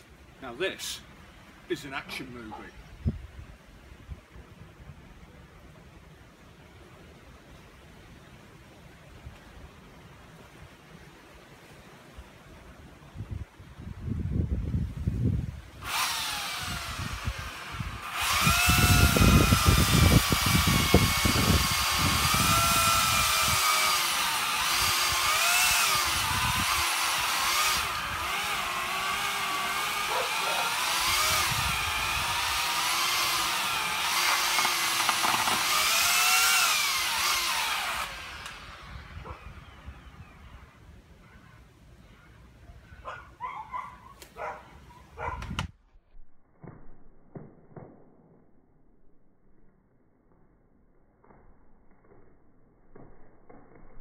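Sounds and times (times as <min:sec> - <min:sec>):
chainsaw cutting wood: 0:15.8 - 0:39.5.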